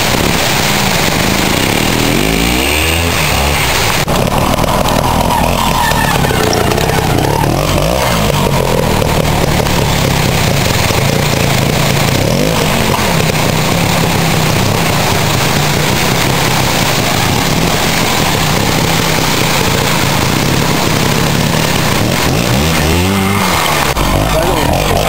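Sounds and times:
motorcycle engine at low revs: 0.0 - 25.0
steady loud hiss: 0.0 - 25.0.

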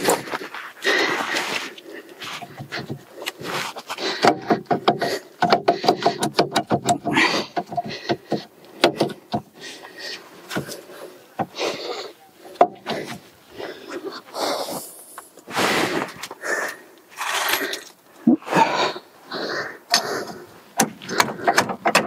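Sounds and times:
brake caliper clicking and rattling: 4.2 - 9.6, 20.7 - 22.0.

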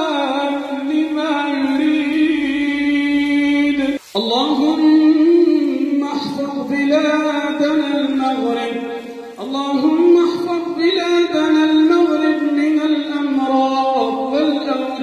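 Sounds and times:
man chanting: 0.0 - 15.0.

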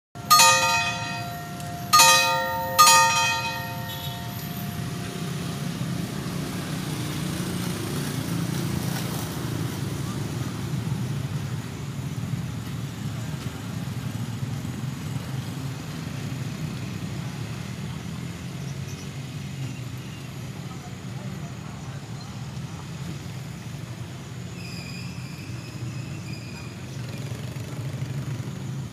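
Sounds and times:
level-crossing bell ringing: 0.2 - 6.7
low rumble of road vehicles: 0.2 - 28.9.

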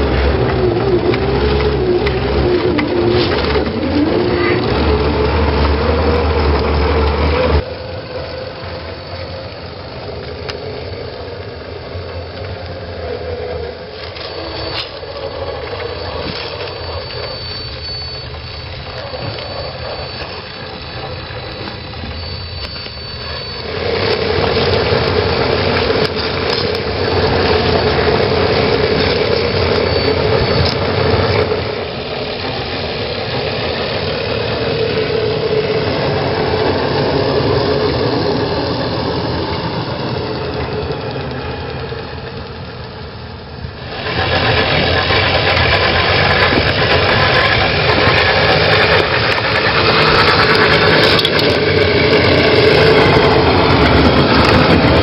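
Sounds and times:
rc car motor and drivetrain: 0.0 - 55.0
thin high whine: 0.0 - 55.0.

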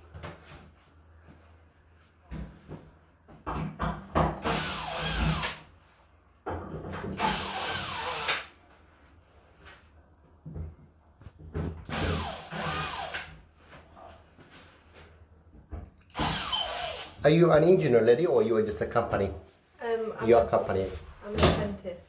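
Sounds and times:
cordless drill motor whine: 7.2 - 8.4, 11.9 - 13.2, 16.1 - 17.2.

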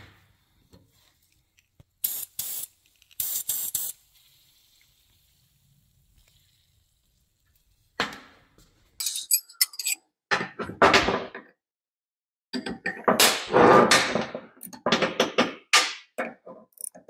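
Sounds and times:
metal tools clinking on workbench: 9.0 - 10.0.

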